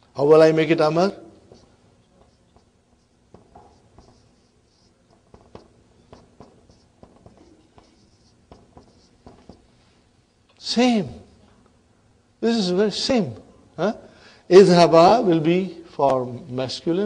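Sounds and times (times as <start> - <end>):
marker writing on whiteboard: 0.2 - 10.4.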